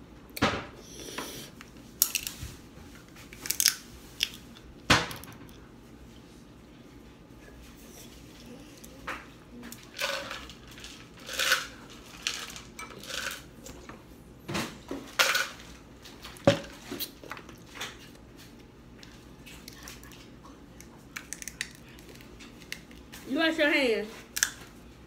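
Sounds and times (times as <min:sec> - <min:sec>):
shells cracking and peeling: 0:03.4 - 0:04.4, 0:20.8 - 0:23.0.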